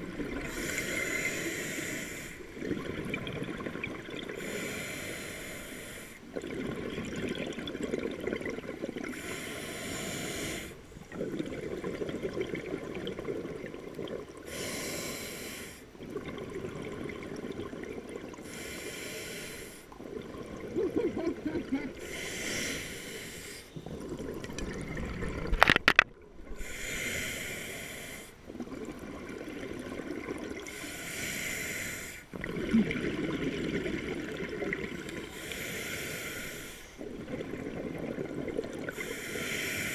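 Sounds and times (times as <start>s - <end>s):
hissing regulator inhale: 0.5s - 2.5s, 4.4s - 6.2s, 9.1s - 10.8s, 14.5s - 15.9s, 18.4s - 19.9s, 22.0s - 23.8s, 26.6s - 28.4s, 30.7s - 32.3s, 35.2s - 37.0s, 38.9s - 39.9s.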